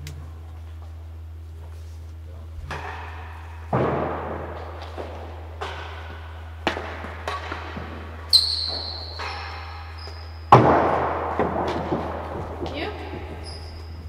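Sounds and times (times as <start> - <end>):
high squeal: 8.3 - 10.5, 13.4 - 14.0.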